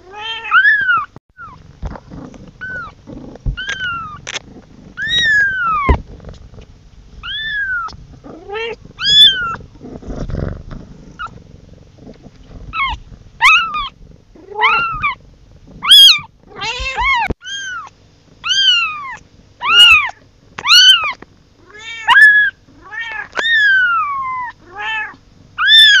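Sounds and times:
kitten meowing: 0:00.1 - 0:01.6, 0:03.6 - 0:04.2, 0:05.0 - 0:06.0, 0:07.2 - 0:09.6, 0:12.7 - 0:15.2, 0:15.8 - 0:26.0.

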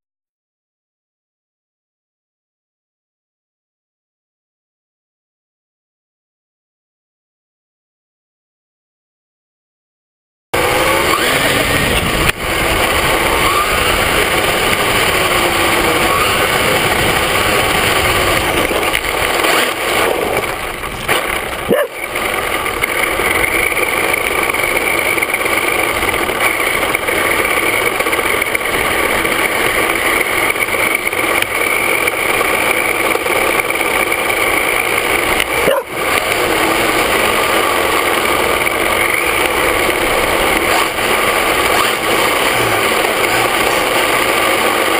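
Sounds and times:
electric motor and gears whining: 0:10.6 - 0:44.9
tyre and road noise: 0:10.6 - 0:44.9.

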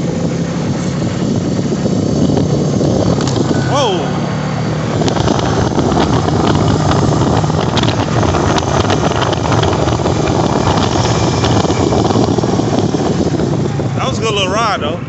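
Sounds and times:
atv engine running: 0:00.0 - 0:15.0
wind noise on microphone: 0:00.0 - 0:15.0.

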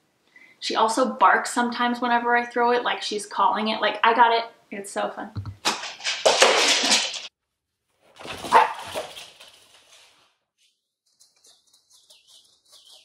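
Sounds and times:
dog claws clicking on wood floor: 0:05.6 - 0:07.3
dog barking: 0:08.4 - 0:09.1.

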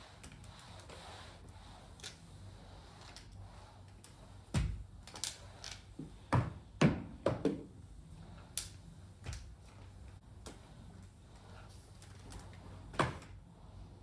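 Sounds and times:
spray mop knocking and clacking: 0:06.0 - 0:07.7.

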